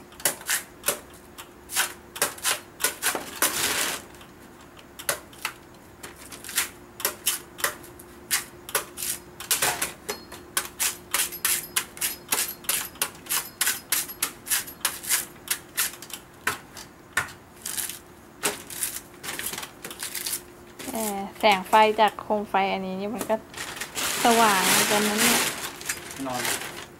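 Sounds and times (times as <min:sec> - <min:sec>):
knife shaving coconut husk: 0:20.0 - 0:21.4.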